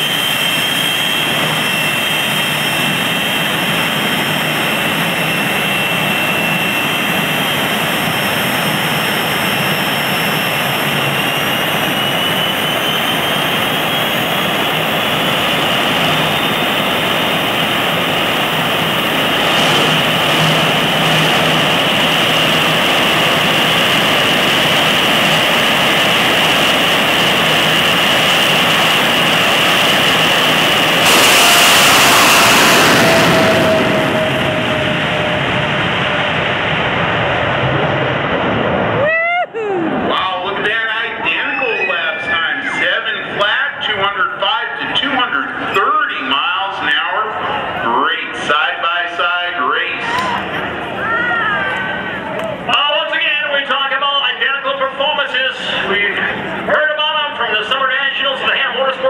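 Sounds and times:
turbine engine whine: 0.0 - 59.0
afterburners rushing hiss: 28.5 - 35.8.

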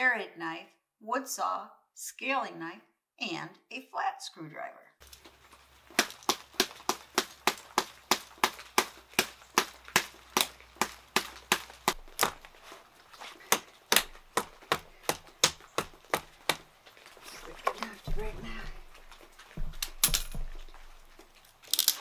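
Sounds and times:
hatchet chopping branch: 5.9 - 12.5, 13.4 - 16.8.

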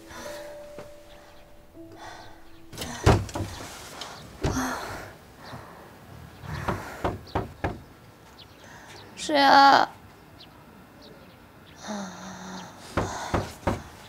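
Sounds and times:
quiet background music: 0.0 - 5.3
wooden knocks and thumps: 2.6 - 4.9, 6.6 - 7.9, 13.0 - 14.0.

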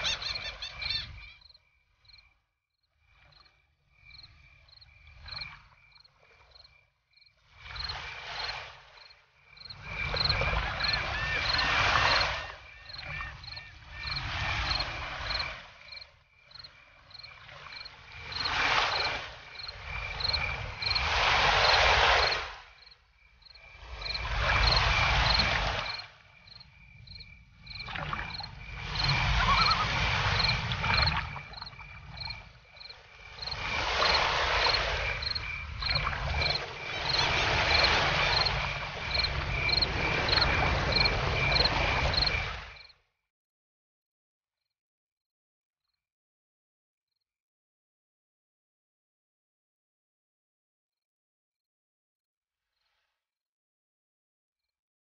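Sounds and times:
cricket chirping: 0.0 - 43.0.

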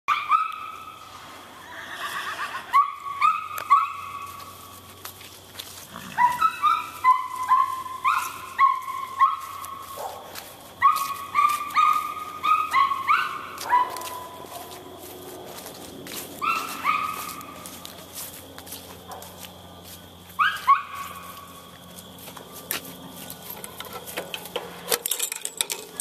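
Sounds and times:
dog yipping: 0.1 - 0.8, 2.7 - 4.4, 6.2 - 10.2, 10.8 - 14.8, 16.4 - 17.6, 20.4 - 21.4.

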